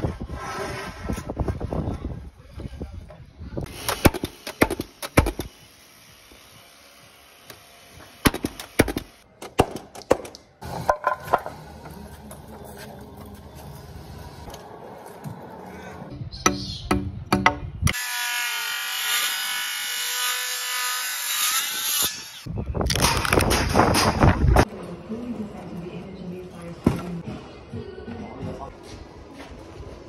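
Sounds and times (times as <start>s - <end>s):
nail gun shots: 3.7s - 5.5s, 8.2s - 10.4s, 22.9s - 24.4s.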